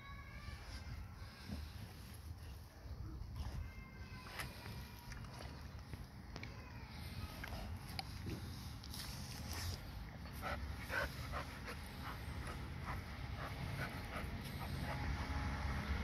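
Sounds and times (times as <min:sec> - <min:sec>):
dog panting: 0:10.3 - 0:15.4.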